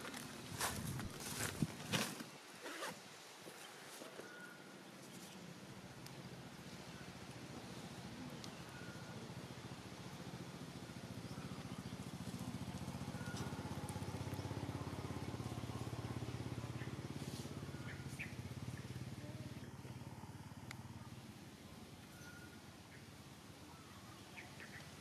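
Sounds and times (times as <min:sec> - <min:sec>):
motor vehicle passing by: 0:06.3 - 0:23.0.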